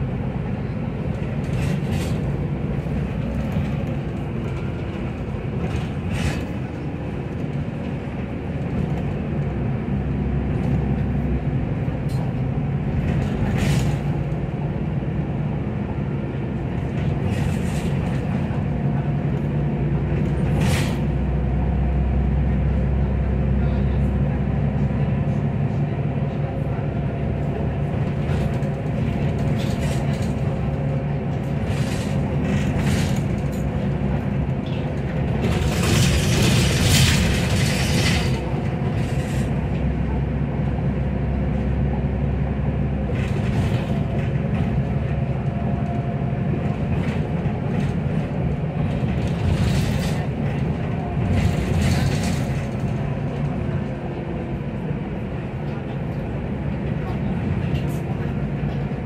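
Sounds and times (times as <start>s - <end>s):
bus engine running: 0.0s - 59.0s
road rumble: 0.0s - 59.0s.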